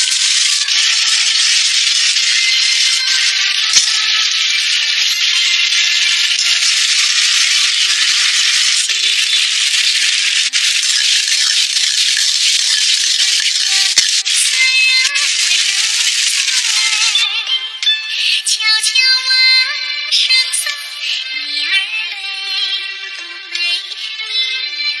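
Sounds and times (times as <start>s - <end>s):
sauce sizzling in a wok: 0.0s - 17.2s.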